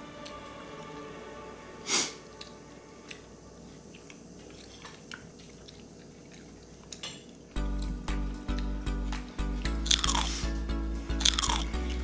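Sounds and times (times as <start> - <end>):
quiet background music: 0.0 - 12.0
sharp breath through nose: 1.8 - 2.2.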